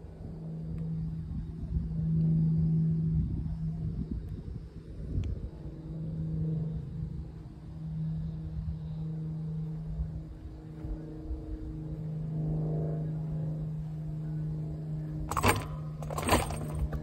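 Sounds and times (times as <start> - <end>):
low motor hum: 0.0 - 17.0
metal chains rattling: 15.3 - 17.0.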